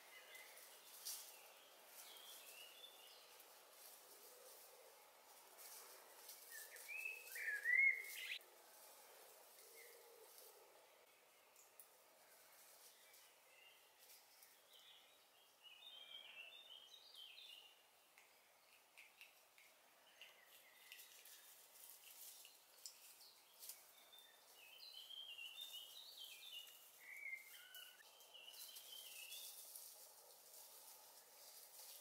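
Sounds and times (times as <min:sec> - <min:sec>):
rustles in dry leaves: 0:00.0 - 0:11.1, 0:11.9 - 0:14.9, 0:20.5 - 0:32.0
songbird twittering: 0:06.6 - 0:08.4.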